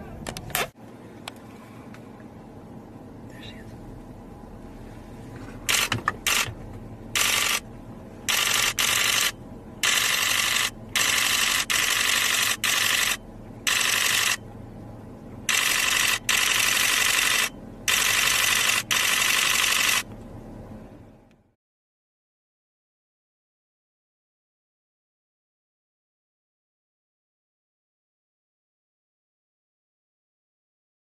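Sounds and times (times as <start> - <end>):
camera shutter bursts: 5.7 - 6.5, 7.2 - 7.6, 8.3 - 14.4, 15.5 - 20.0.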